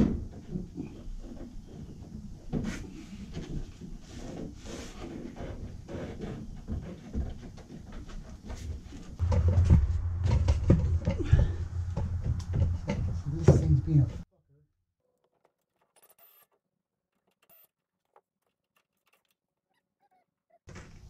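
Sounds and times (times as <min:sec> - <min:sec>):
loud steady low hum: 0:09.2 - 0:14.2.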